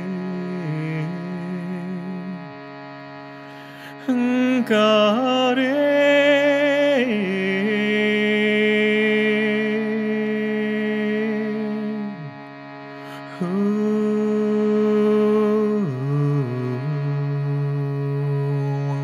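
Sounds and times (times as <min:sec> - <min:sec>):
shruti box drone: 0:00.0 - 0:19.0
overtone singing: 0:13.2 - 0:19.0.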